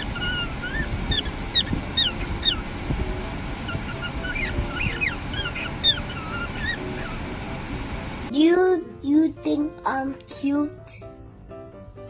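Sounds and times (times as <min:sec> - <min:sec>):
cockatiel chirping: 0:00.0 - 0:02.8, 0:03.6 - 0:07.3
steady low rumble: 0:00.0 - 0:08.3.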